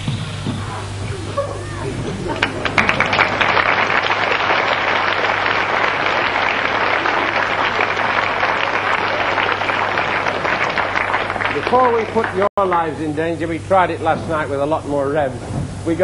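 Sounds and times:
low mains hum: 0.0s - 16.0s
audience applauding: 1.6s - 13.0s.

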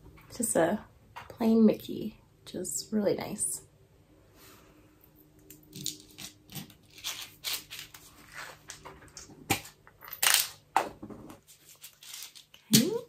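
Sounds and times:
packaging crinkling and rustling: 5.7s - 10.6s, 11.4s - 13.0s.

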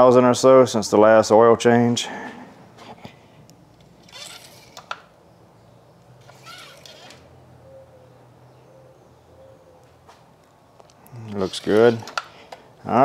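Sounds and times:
handling rustles: 9.9s - 12.6s.

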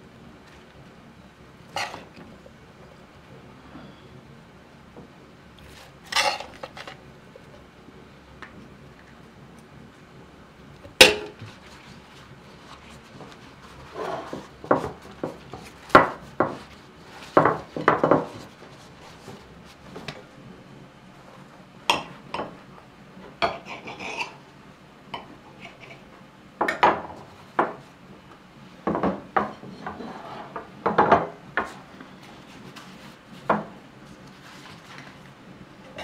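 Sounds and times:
flatbread rustling: 5.6s - 7.5s, 11.3s - 20.4s, 31.7s - 36.0s.

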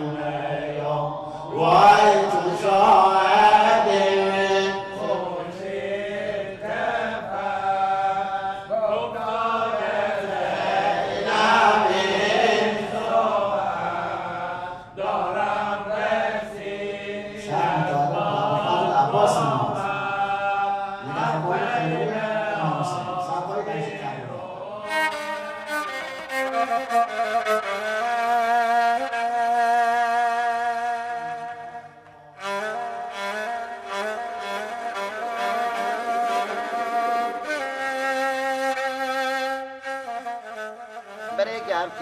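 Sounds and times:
man chanting into a microphone: 0.0s - 5.7s, 17.4s - 24.9s.

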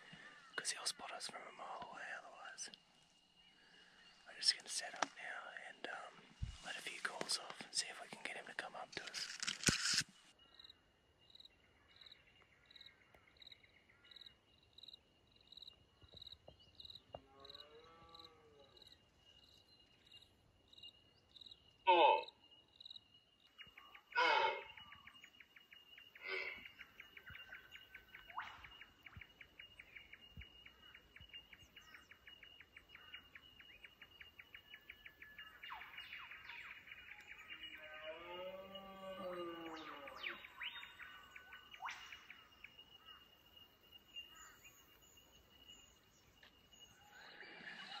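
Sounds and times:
insect trill: 9.0s - 28.5s
short loud calls: 24.2s - 24.8s.

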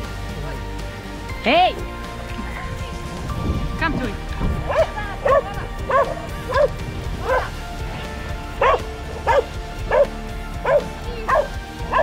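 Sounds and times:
dog barking: 4.7s - 7.5s, 8.6s - 12.0s.

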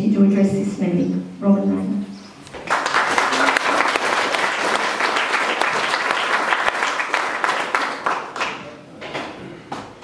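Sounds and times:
audience applauding: 2.6s - 8.8s.

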